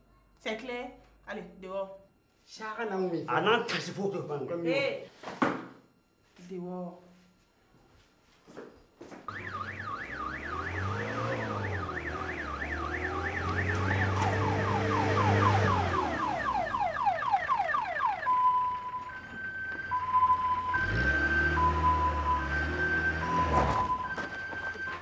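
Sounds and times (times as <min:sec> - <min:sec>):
vehicle engine running: 0:09.3 - 0:17.2
police siren: 0:09.3 - 0:25.0.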